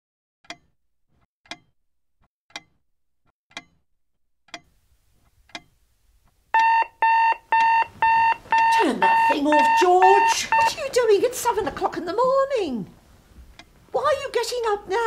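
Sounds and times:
clock ticking slowly: 0.5s - 0.8s, 1.4s - 1.7s, 2.5s - 2.8s, 3.5s - 3.8s, 4.5s - 10.8s
alarm clock beeping: 6.6s - 10.8s.

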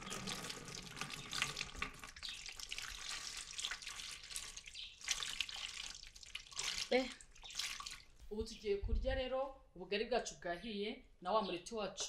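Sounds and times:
water pouring and splashing: 0.0s - 8.2s.

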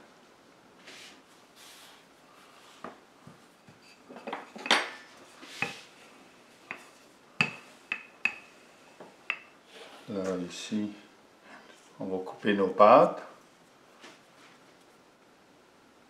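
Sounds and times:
rolling pin rolling dough: 0.8s - 10.2s.

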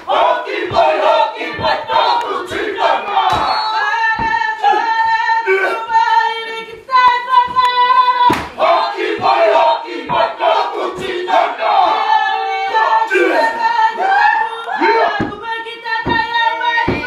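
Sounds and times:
group shouting a chant: 0.0s - 6.3s, 8.1s - 15.3s
group singing long held notes: 0.0s - 17.0s.

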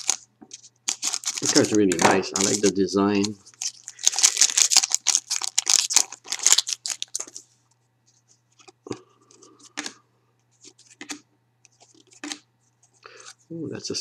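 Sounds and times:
foil wrapper tearing and crinkling: 0.0s - 7.4s
cards clicking and sliding: 10.6s - 12.4s.

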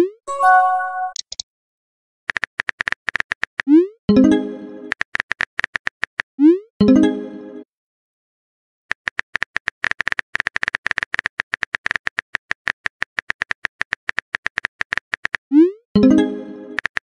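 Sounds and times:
phone keyboard typing clicks: 1.1s - 1.4s, 16.8s - 17.0s.

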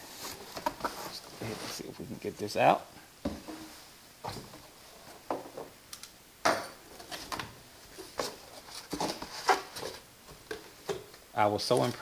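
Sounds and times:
cardboard scraping and rustling: 0.0s - 1.9s, 8.0s - 10.0s.

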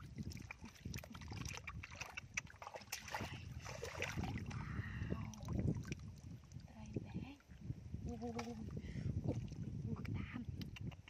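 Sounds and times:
hands squelching through mud: 0.0s - 4.7s
small water splashes: 0.0s - 9.9s
wet clicks: 1.5s - 3.1s, 10.0s - 11.0s.

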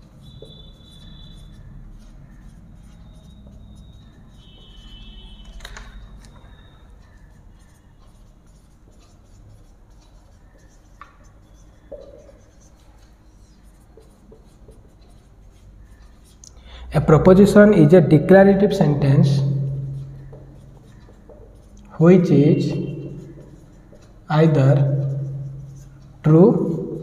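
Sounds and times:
marker squeaking on whiteboard: 0.0s - 27.0s
marker tapping on board: 7.1s - 16.4s, 19.3s - 27.0s.

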